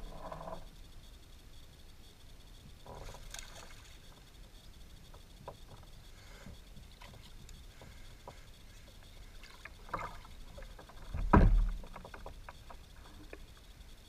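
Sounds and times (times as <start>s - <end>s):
deep thump: 11.1s - 11.8s.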